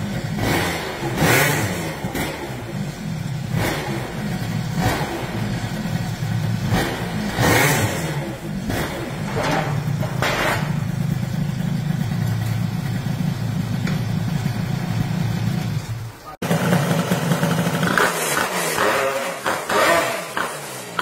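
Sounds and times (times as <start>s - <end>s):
clatter: 0.0s - 21.0s
scooter engine idling: 0.0s - 21.0s
low engine hum: 2.6s - 16.3s.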